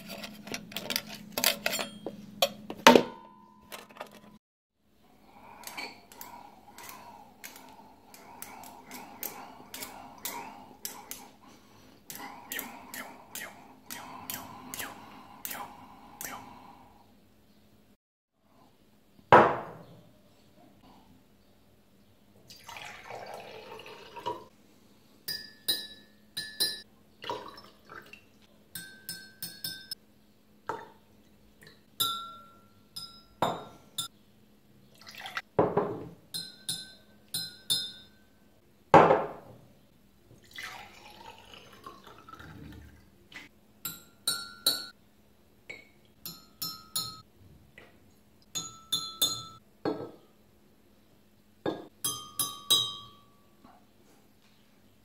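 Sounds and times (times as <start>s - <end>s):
metal rod clinking on glass: 1.4s - 4.4s, 46.2s - 47.2s
water pouring into glass: 22.5s - 24.5s, 27.2s - 28.2s, 35.0s - 35.4s, 40.4s - 43.0s.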